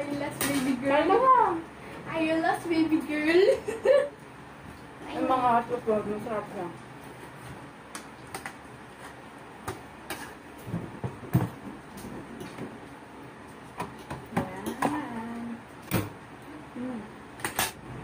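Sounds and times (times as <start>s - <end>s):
person humming: 16.5s - 17.2s.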